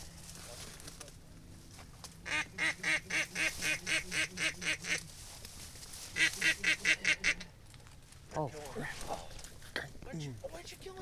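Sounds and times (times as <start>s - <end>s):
duck call short calls: 2.2s - 5.0s, 6.1s - 7.5s.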